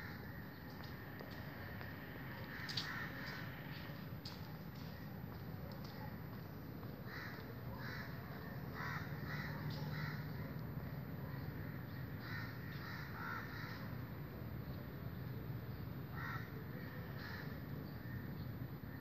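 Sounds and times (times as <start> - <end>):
crows cawing: 0.0 - 0.5, 2.4 - 4.0, 7.0 - 10.6, 11.6 - 14.0, 16.1 - 17.5.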